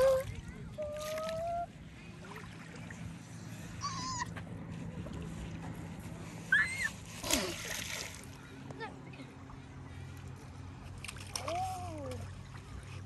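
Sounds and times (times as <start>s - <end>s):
small waves lapping on shore: 4.7s - 8.7s.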